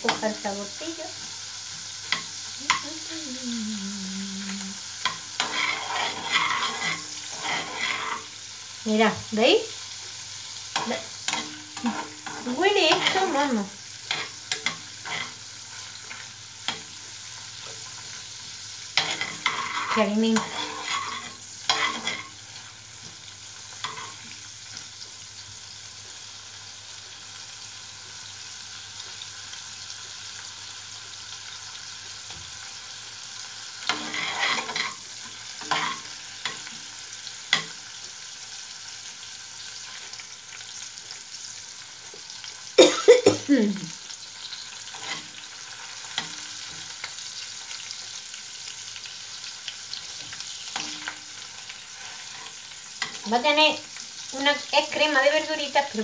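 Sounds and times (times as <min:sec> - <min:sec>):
prawns sizzling in frying pan: 0:00.0 - 0:56.0
spatula scraping pan: 0:05.0 - 0:08.5, 0:10.7 - 0:18.1, 0:18.9 - 0:24.4, 0:33.8 - 0:36.8, 0:44.1 - 0:47.7, 0:49.9 - 0:54.3.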